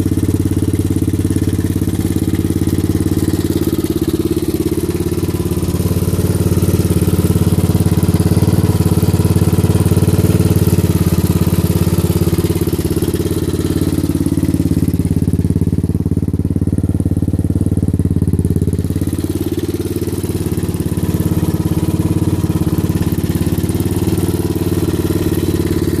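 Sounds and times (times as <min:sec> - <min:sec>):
motorcycle engine idling: 0:00.0 - 0:26.0.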